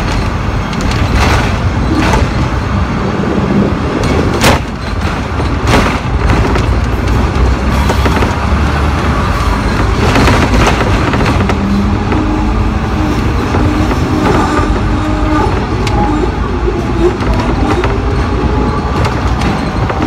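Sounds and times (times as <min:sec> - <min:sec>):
tram wheels rumbling on rails: 0:00.0 - 0:20.0
wheels knocking on track junction: 0:03.9 - 0:20.0.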